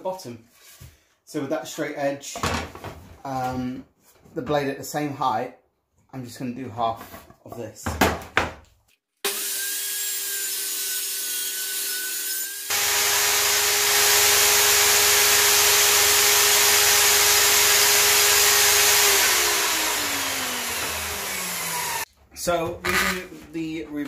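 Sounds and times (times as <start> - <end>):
saw cutting through wood: 9.2 - 22.1
table saw whining: 9.3 - 22.1.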